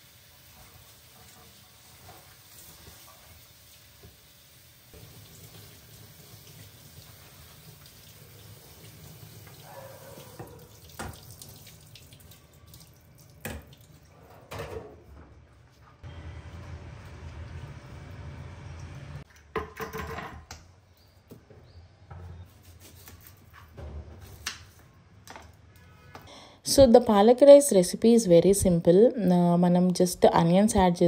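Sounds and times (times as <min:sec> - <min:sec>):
faucet running into sink: 0:04.9 - 0:14.0.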